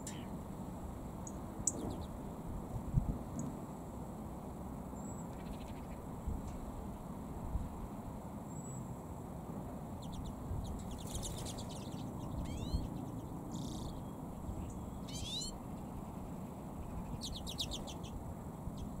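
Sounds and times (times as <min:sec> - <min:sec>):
birds chattering: 0:00.0 - 0:00.4, 0:10.0 - 0:18.2
rising bird calls: 0:11.1 - 0:12.9, 0:15.0 - 0:15.6.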